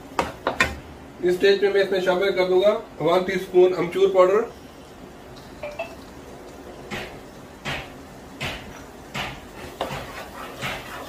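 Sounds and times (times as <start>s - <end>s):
oil sizzling in a wok: 4.4s - 11.0s.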